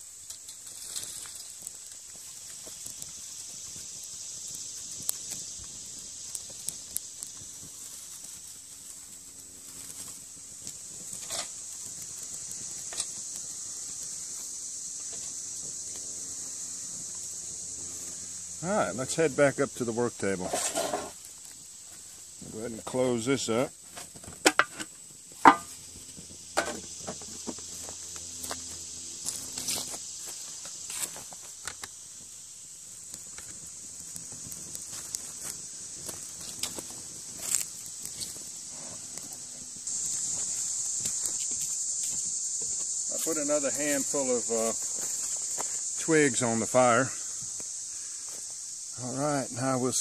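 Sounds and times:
fire hissing: 0.0 - 50.0
high insect hum: 0.0 - 50.0
twig fire crackling: 0.0 - 50.0
footsteps on leaves: 34.3 - 46.0.

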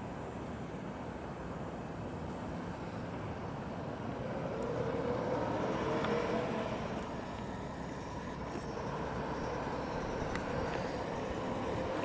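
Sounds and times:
car engine running at low speed: 4.0 - 12.0.

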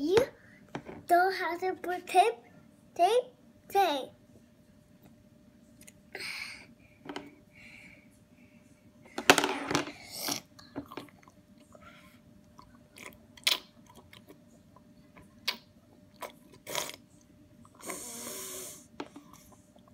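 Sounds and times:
child slurping and smacking: 15.4 - 17.1.

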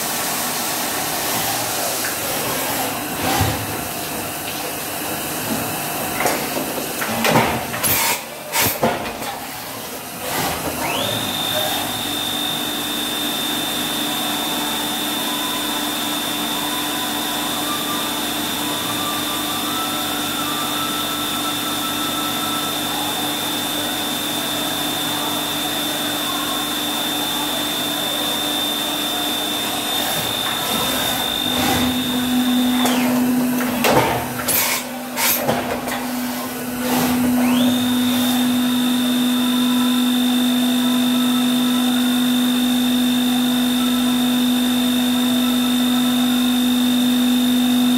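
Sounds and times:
machine spindle whining: 10.2 - 47.9.

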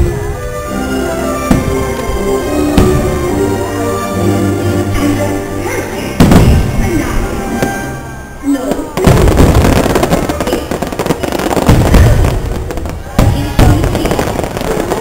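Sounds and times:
soundtrack music: 0.0 - 9.0
fireworks booming: 0.0 - 15.0.

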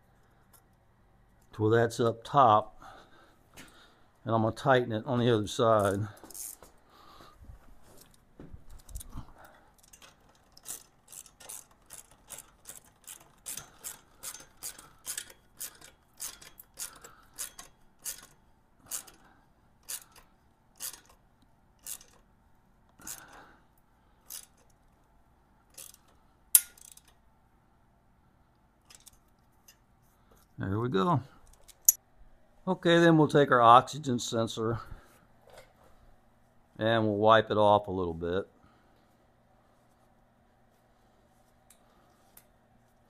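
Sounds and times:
ratchet wrench clicking: 6.3 - 6.6, 9.8 - 21.2, 21.8 - 22.3, 23.0 - 23.4, 24.3 - 24.8, 25.7 - 27.2, 28.9 - 29.2.

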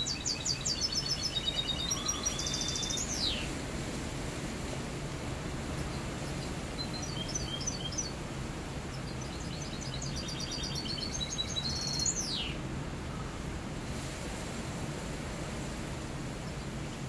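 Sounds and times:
bird singing twittering trills: 0.0 - 3.5, 5.9 - 8.2, 8.9 - 12.6.

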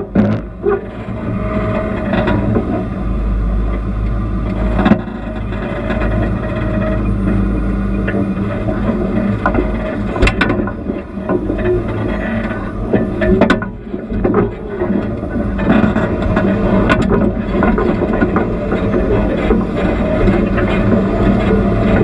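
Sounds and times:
vehicle engine running slowly: 0.0 - 22.0.

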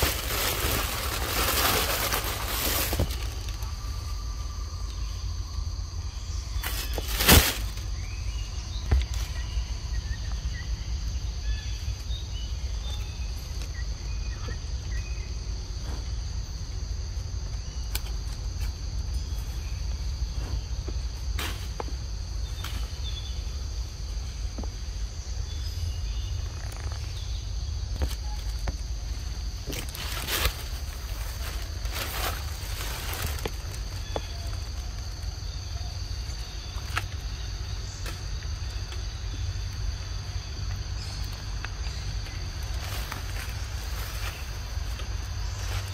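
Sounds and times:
high-pitched insect drone: 0.0 - 21.2.

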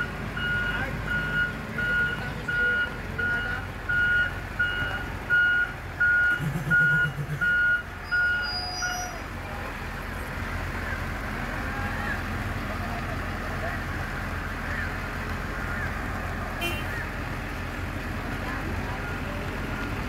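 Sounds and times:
reversing alarm beeping: 0.0 - 9.2.

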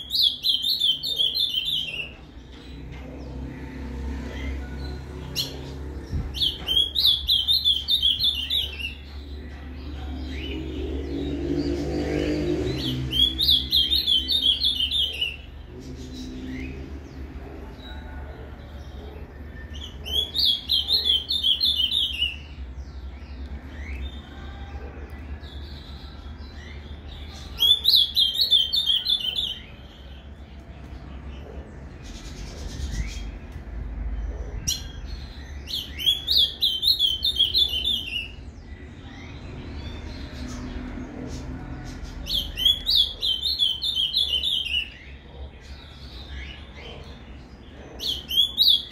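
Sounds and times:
bird song warbled phrases: 0.0 - 48.9.

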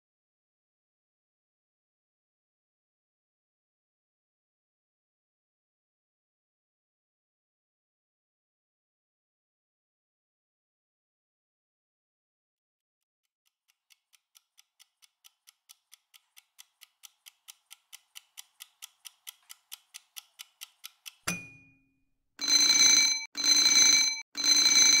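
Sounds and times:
timer ticking fast: 13.6 - 21.6, 22.4 - 25.0
alarm ringing: 22.4 - 25.0.

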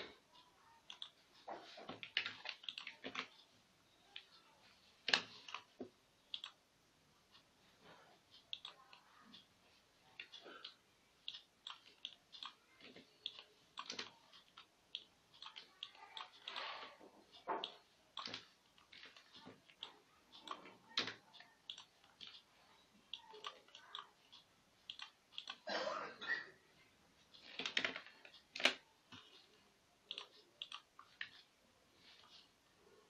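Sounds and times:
computer mouse clicks: 0.0 - 1.2, 1.8 - 3.4, 5.0 - 6.6, 8.3 - 9.5, 10.2 - 22.5, 23.1 - 25.6, 27.3 - 31.5.

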